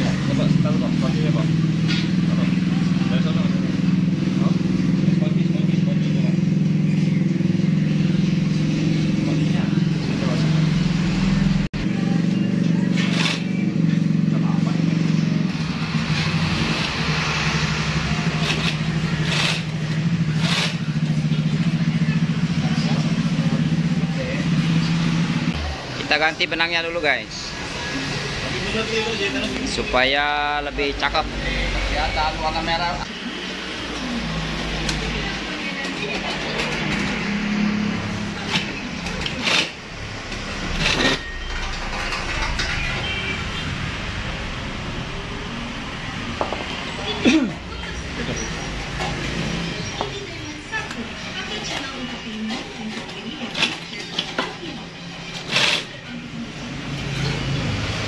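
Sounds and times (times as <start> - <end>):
sewing machine stitching: 12.9 - 13.6, 15.6 - 21.3, 36.1 - 43.2, 52.5 - 54.6, 55.2 - 56.0.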